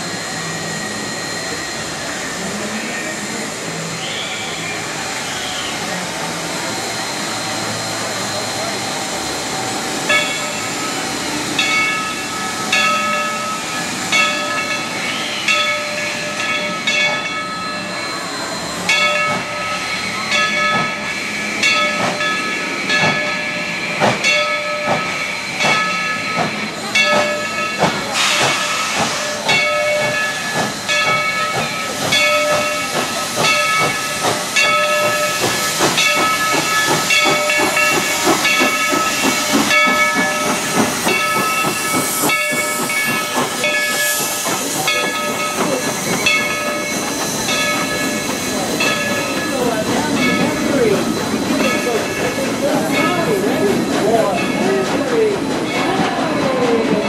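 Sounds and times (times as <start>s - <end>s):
locomotive bell ringing: 0.0s - 57.0s
steam hissing: 0.0s - 57.0s
steam exhaust chuffs: 18.8s - 57.0s.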